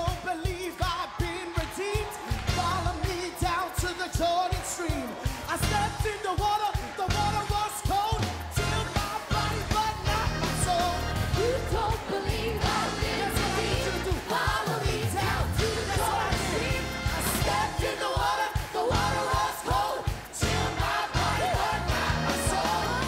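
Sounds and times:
keyboard worship music: 0.0 - 23.0
voices singing and praying: 8.3 - 23.0.

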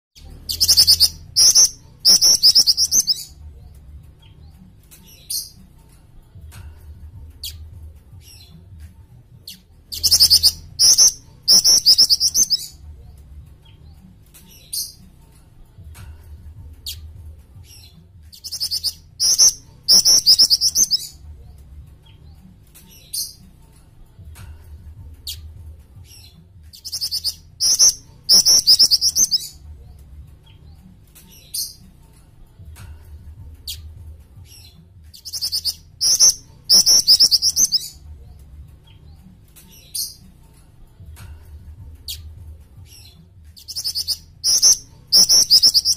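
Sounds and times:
bird trilling high notes: 0.5 - 3.3, 10.0 - 12.8, 18.4 - 21.2, 26.8 - 29.6, 35.2 - 38.0, 43.7 - 45.9
sharp bird chirps: 0.5 - 3.4, 9.5 - 12.8, 18.4 - 21.2, 26.8 - 29.6, 35.2 - 38.0, 43.6 - 45.9.

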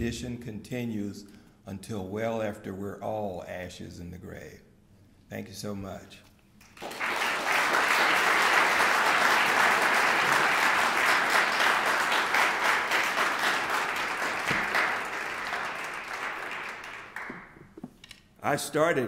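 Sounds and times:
audience applauding: 6.6 - 17.8.

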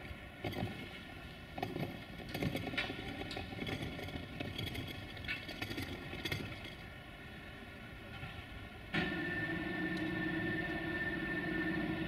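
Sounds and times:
machine humming: 8.9 - 12.0.

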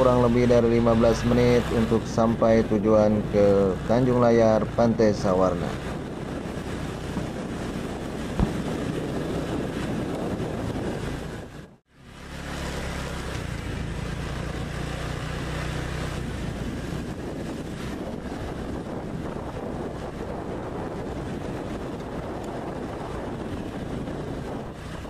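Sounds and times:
low rumble: 0.0 - 11.8
wind buffeting microphone: 4.6 - 11.8, 13.7 - 25.0.

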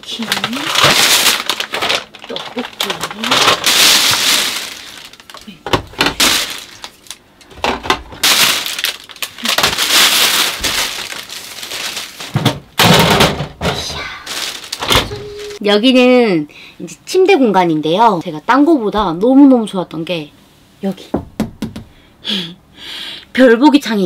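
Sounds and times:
rustling: 8.2 - 12.4, 13.8 - 15.6.

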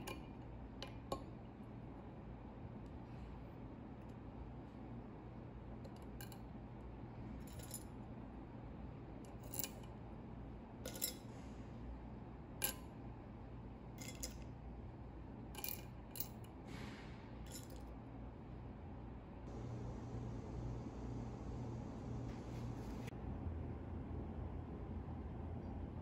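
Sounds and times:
low steady hum: 0.0 - 26.0
tweezers clinking on glass: 10.9 - 11.2.

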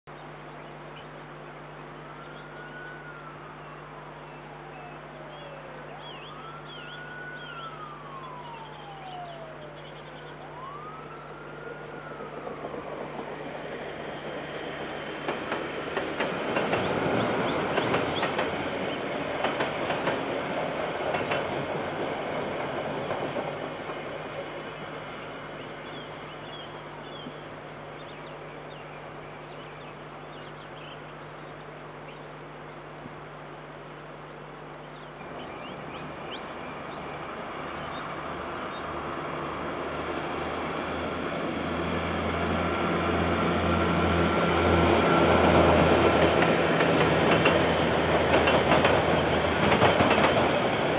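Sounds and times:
small birds chirping: 0.1 - 12.2, 16.7 - 19.2, 23.9 - 32.9, 34.6 - 39.0
low hum: 0.1 - 18.0
siren wailing: 1.8 - 13.5.

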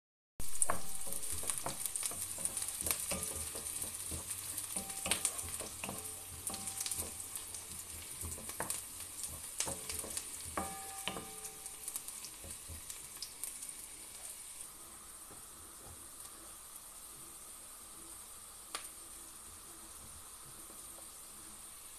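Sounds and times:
wooden spatula scraping a pan: 0.4 - 13.2
onions sizzling in hot oil: 0.4 - 21.9
short ringing knocks on pan: 4.8 - 7.4, 9.3 - 11.8.

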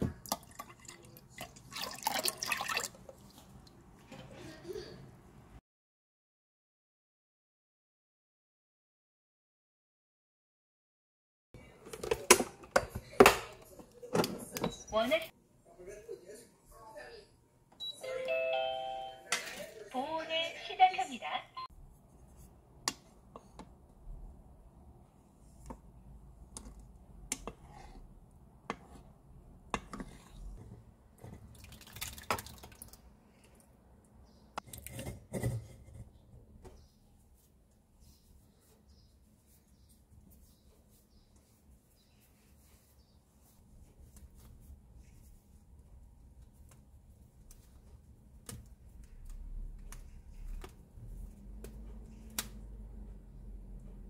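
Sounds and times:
spatula squishing thick yogurt: 25.2 - 31.6.

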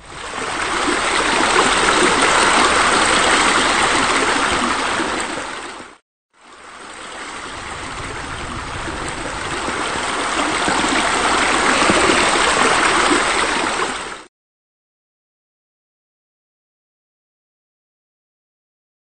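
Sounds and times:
waterfall spilling into pool: 0.0 - 14.3.

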